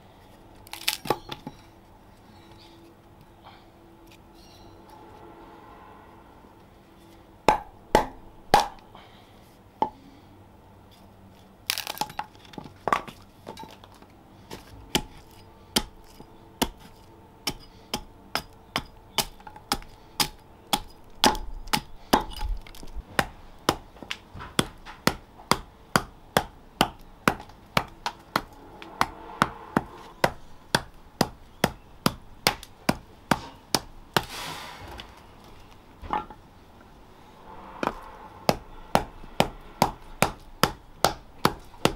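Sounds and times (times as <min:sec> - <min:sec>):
wooden club striking splitting blade: 0:07.5 - 0:08.9.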